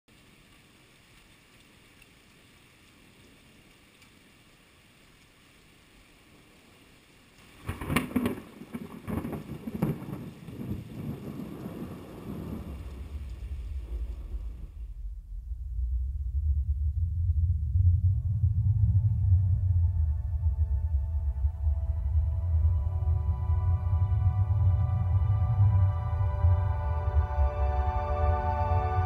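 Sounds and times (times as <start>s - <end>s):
faint hiss: 0.1s - 8.7s
thunderclap with rolling rumble: 7.5s - 27.2s.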